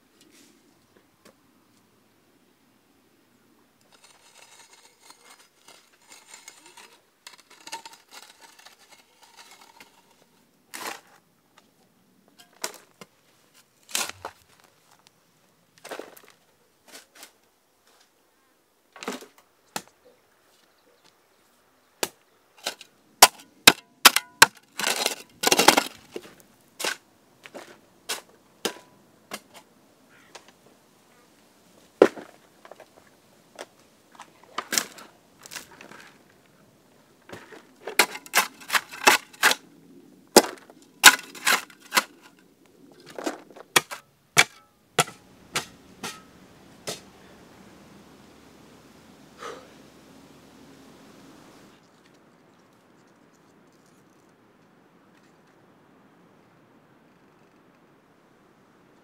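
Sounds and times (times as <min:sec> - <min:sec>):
tool scraping soil: 0:03.9 - 0:11.2, 0:12.4 - 0:14.7, 0:22.6 - 0:29.7, 0:37.3 - 0:39.6, 0:40.4 - 0:42.4.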